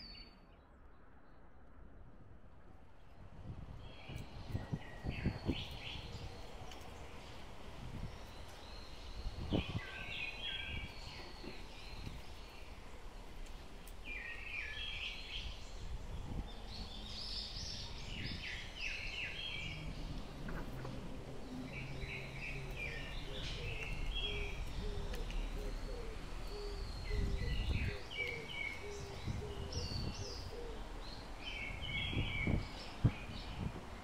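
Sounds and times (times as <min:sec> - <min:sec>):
songbird singing: 0:00.0 - 0:01.7, 0:03.0 - 0:34.0
low outdoor background noise: 0:00.0 - 0:34.0.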